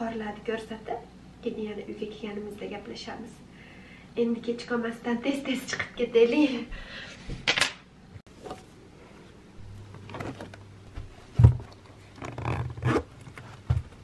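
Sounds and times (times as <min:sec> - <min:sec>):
handling thumps: 0:09.7 - 0:14.0.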